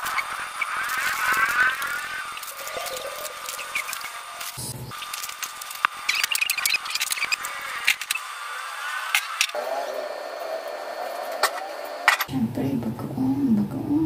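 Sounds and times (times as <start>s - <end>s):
packaging rustling: 0.0s - 8.2s.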